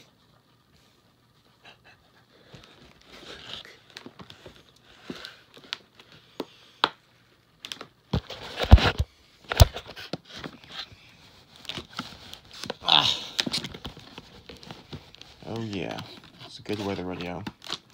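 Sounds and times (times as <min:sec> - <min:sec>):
packaging crinkling and tearing: 0:07.6 - 0:17.9.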